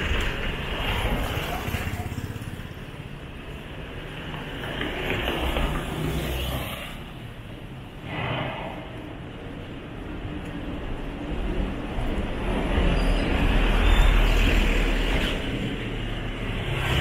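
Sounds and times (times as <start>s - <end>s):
cars and motorcycles passing: 0.0s - 17.0s.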